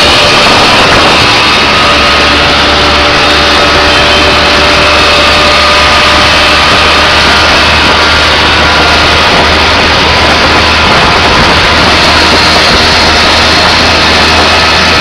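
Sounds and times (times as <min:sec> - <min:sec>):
road noise: 0:00.0 - 0:15.0
small engine running: 0:00.0 - 0:15.0
wind: 0:00.0 - 0:15.0.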